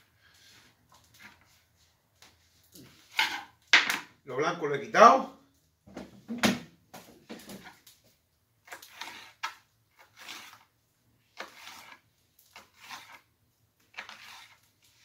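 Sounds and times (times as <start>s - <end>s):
knife cutting on cutting board: 8.7s - 10.7s, 11.4s - 13.3s, 13.9s - 14.6s.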